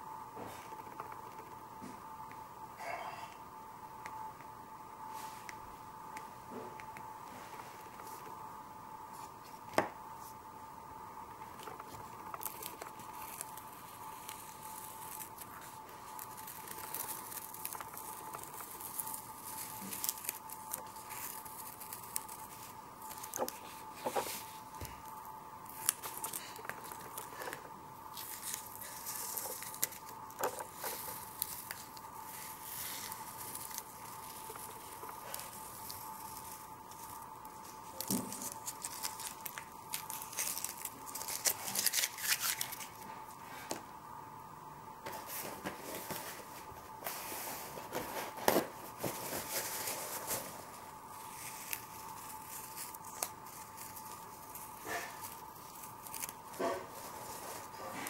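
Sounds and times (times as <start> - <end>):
faint high tone hum: 0.0 - 58.0
tape ripping off paper: 28.1 - 43.0.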